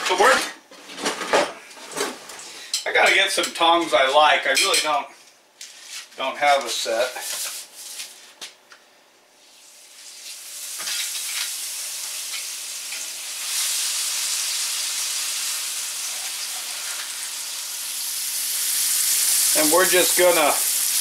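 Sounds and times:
steaks sizzling in skillet: 0:09.5 - 0:21.0.

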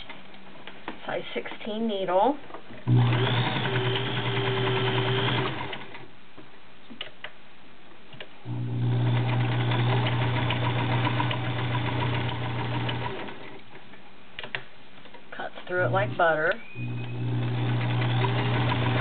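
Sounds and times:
sewing machine stitching: 0:02.9 - 0:06.1, 0:08.5 - 0:13.6, 0:15.7 - 0:19.0
sewing machine clicks: 0:09.1 - 0:13.6, 0:16.5 - 0:19.0.

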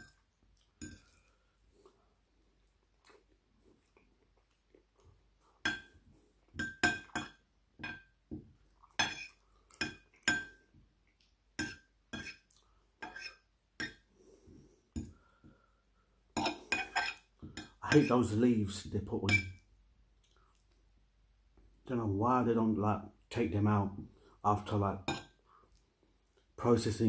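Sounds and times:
metal fork clinking on ceramic plate: 0:16.4 - 0:18.0.

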